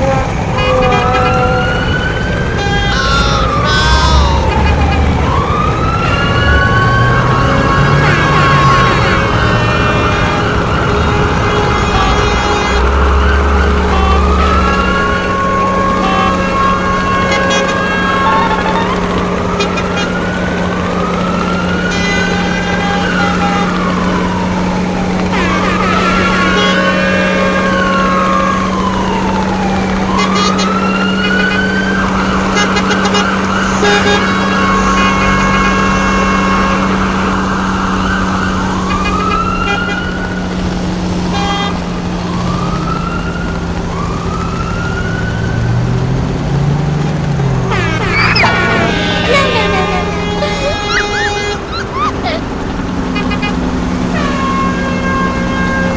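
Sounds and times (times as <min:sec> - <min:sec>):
engine drone: 0:00.0 - 0:55.9
siren rising and falling: 0:01.5 - 0:19.4, 0:47.7 - 0:52.5
toy siren rising whoops: 0:02.6 - 0:07.0, 0:47.9 - 0:52.5.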